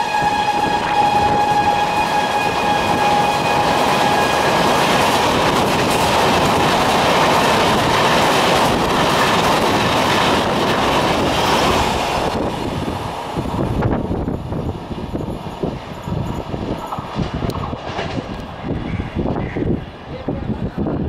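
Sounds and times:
train horn: 0.0 - 4.9
train wheels rushing on track: 0.0 - 21.0.

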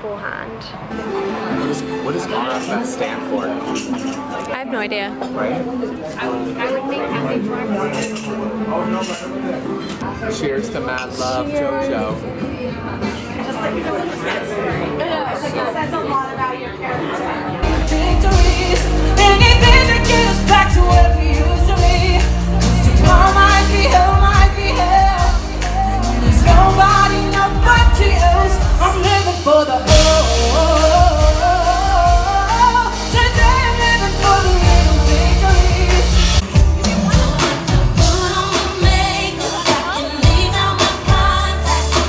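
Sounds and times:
live band with heavy bass: 17.6 - 42.0
woman singing pop song: 17.6 - 42.0.

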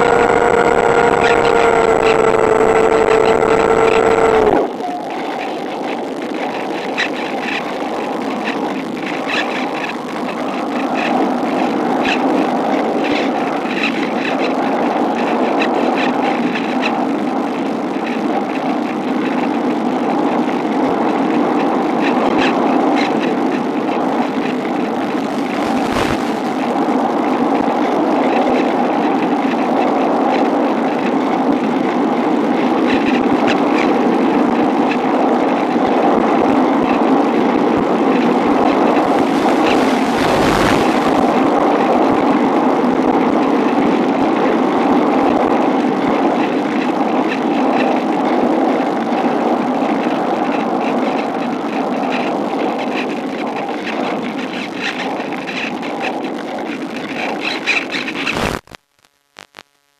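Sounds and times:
rushing airflow noise: 0.0 - 52.6
light crackling: 58.2 - 59.9.

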